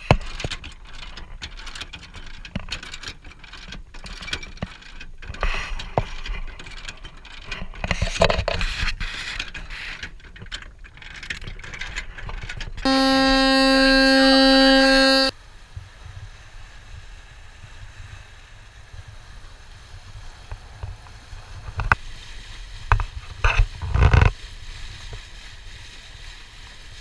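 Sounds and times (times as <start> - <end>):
steady multi-note tone: 12.9 - 15.3.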